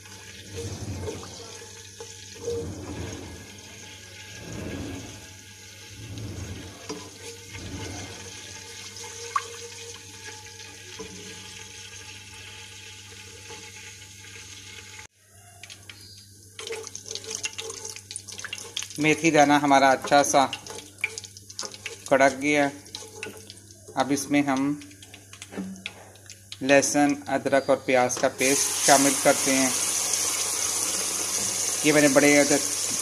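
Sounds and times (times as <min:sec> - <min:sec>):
wooden spoon stirring in pan: 0:00.0 - 0:15.0, 0:16.6 - 0:26.5
seeds sizzling in hot oil: 0:28.4 - 0:33.0.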